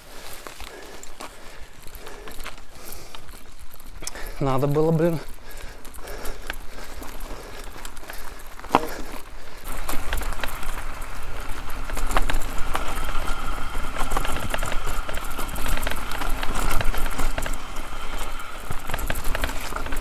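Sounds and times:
tyres on dirt: 0.0 - 20.0
bike frame rattling and knocking: 4.1 - 20.0.

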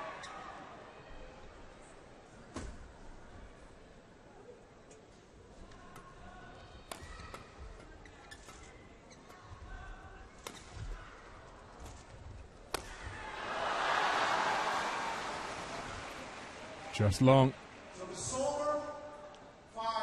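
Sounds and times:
shoe squeaks on court: 8.0 - 9.4
racket striking shuttlecock: 12.7 - 13.0
crowd cheering: 12.7 - 18.3.

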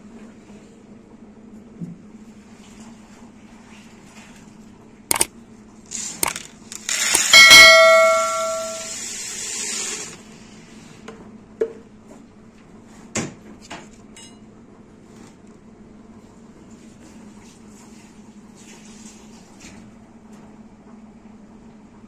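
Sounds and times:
notification bell ding: 7.3 - 9.0.

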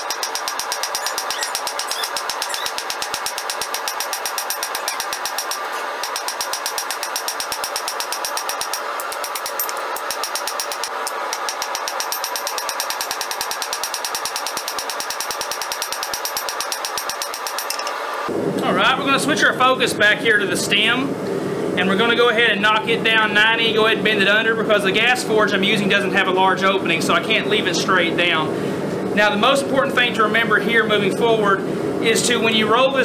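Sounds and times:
anvil ringing: 0.0 - 18.0
hammer striking hot steel: 0.0 - 18.0.

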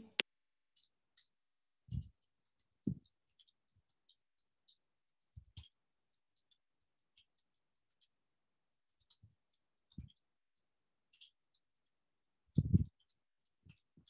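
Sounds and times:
short dull thumps: 12.6 - 12.9.

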